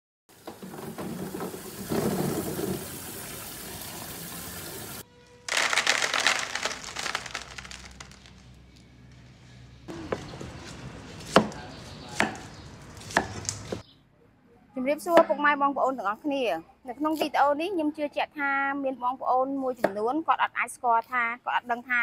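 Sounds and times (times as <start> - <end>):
running water splashing: 0.3 - 8.3
dried fruit rattling onto tray: 5.5 - 8.6.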